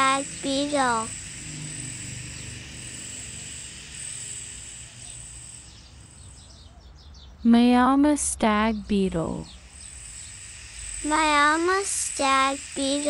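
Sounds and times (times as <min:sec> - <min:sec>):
high-pitched insect drone: 0:00.0 - 0:06.7, 0:09.4 - 0:13.0.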